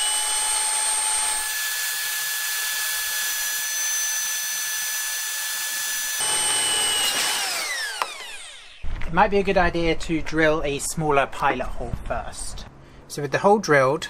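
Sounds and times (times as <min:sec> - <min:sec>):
power drill drilling sheet metal: 0:00.0 - 0:08.9.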